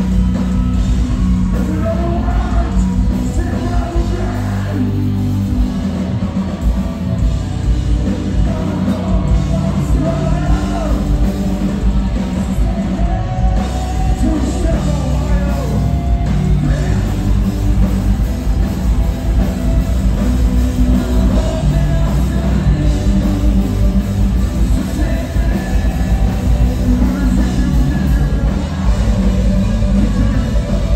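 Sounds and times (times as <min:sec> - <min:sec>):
distorted guitars: 0:00.0 - 0:30.9
drums: 0:00.0 - 0:30.9
keyboards: 0:00.0 - 0:30.9
person singing and yelling: 0:01.3 - 0:05.2, 0:08.2 - 0:11.3.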